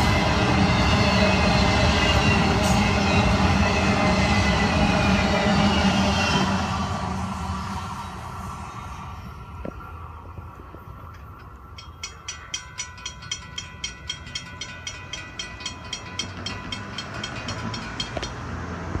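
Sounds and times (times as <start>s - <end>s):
railroad crossing bell ringing: 10.6s - 19.0s.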